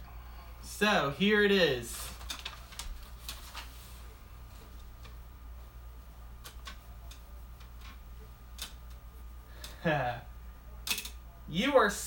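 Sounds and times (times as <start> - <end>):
plastic wrapping crinkling: 2.0 - 4.0.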